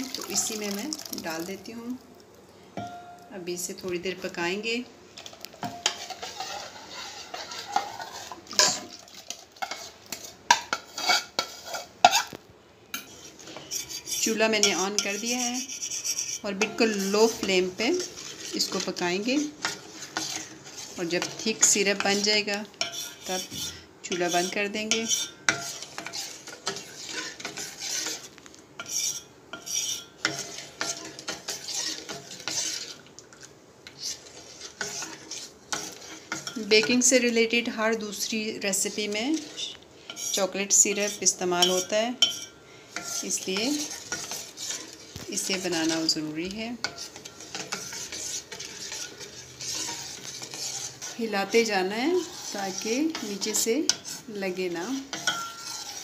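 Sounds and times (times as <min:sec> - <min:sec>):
spoon clinking on pan: 0:02.8 - 0:03.3, 0:41.6 - 0:42.6, 0:55.1 - 0:55.8
metal spoon scraping steel bowl: 0:05.6 - 0:12.4, 0:13.0 - 0:33.0, 0:33.8 - 0:56.0.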